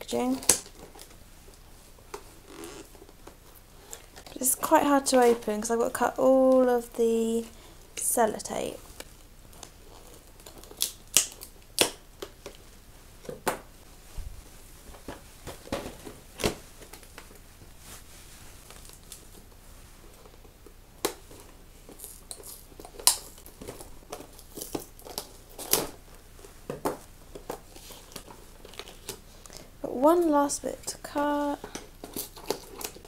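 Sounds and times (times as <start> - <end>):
plastic crinkling: 6.3 - 13.4, 14.4 - 29.7, 30.8 - 33.0.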